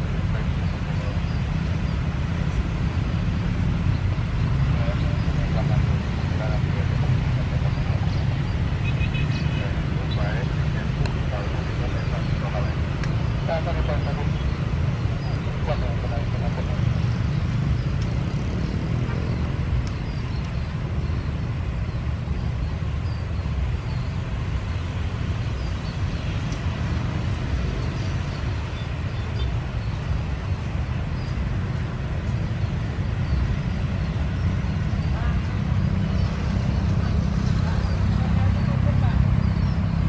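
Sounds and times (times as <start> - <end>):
low traffic rumble: 0.0 - 40.0
motorcycles passing: 0.0 - 40.0.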